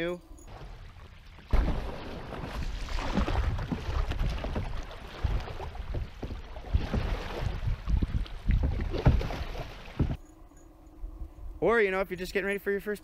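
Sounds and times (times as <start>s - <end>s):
water rushing against hull: 0.5s - 10.2s
wind buffeting microphone: 0.8s - 10.2s.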